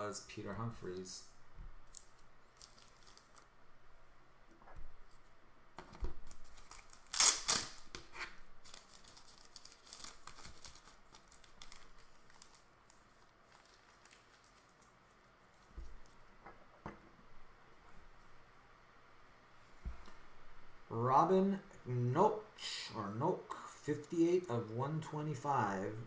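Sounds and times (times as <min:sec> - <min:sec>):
foil wrapper tearing and crinkling: 0:01.9 - 0:03.5, 0:06.2 - 0:15.0.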